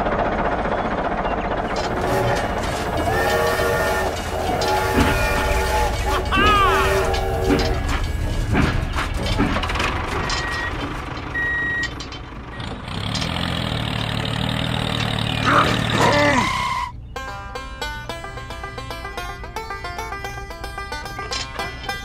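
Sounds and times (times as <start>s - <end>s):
tractor engine running: 0.0s - 22.0s
train clattering: 0.0s - 22.0s.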